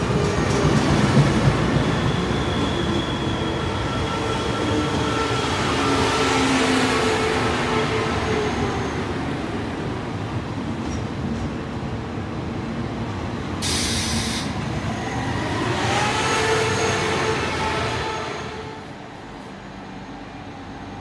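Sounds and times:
short hiss: 13.6s - 14.6s.

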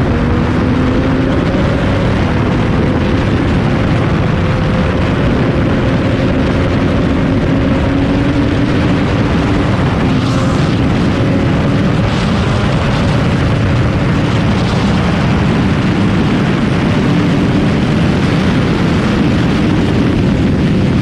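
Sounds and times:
motorcycle engine at high speed: 0.0s - 21.0s
wind rushing on microphone: 0.0s - 21.0s.

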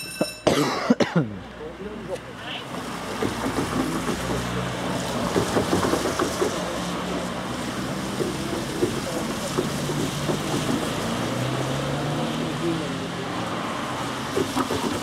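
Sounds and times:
steam train rushing past: 2.7s - 12.6s, 13.9s - 15.0s
train wheels knocking on rails: 3.1s - 6.8s, 8.0s - 11.1s, 14.3s - 15.0s.

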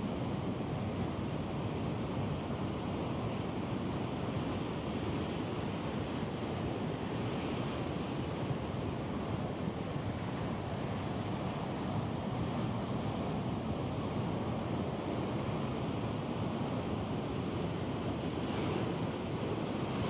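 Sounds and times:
ocean surf: 0.0s - 20.0s.

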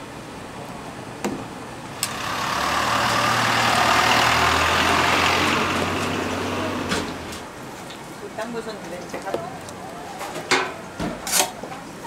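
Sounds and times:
vehicle passing by: 2.0s - 7.5s
low engine hum: 2.0s - 7.6s.

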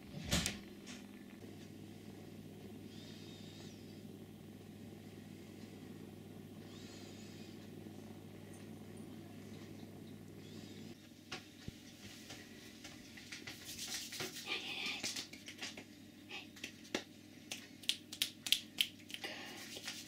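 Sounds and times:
cat purring: 0.0s - 11.0s
scratchy rustling: 13.3s - 15.1s.

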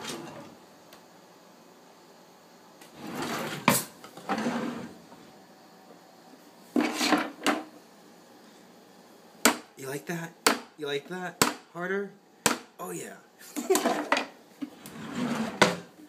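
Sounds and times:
drawers sliding open and shut: 0.0s - 0.6s, 2.8s - 5.0s, 6.8s - 7.7s, 13.7s - 16.0s.

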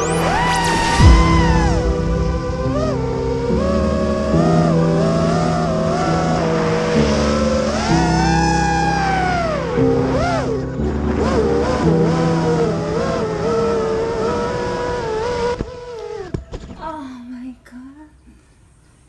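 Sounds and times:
background music with bass line: 0.0s - 6.8s
drone motors whining: 0.0s - 16.7s.

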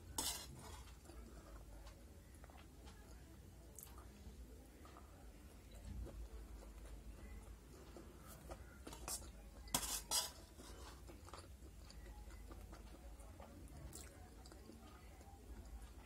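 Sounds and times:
spoon scraping and clinking on plate: 0.1s - 1.1s, 8.9s - 11.1s.

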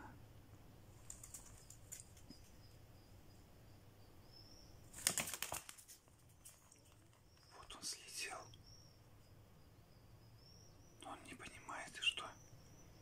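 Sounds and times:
wings flapping: 1.0s - 2.3s, 4.9s - 7.1s.

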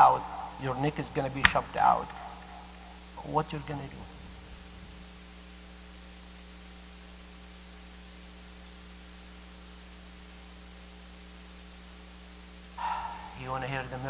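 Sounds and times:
electrical mains hum: 0.0s - 14.0s
faint hiss: 0.0s - 14.0s.

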